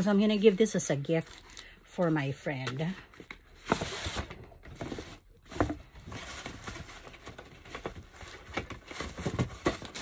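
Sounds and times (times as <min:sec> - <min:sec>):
gift box and paper rustling: 0:03.2 - 0:10.0.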